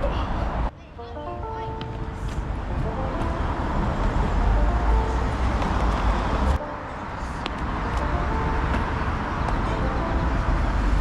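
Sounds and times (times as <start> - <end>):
road traffic hiss: 1.4 - 11.0.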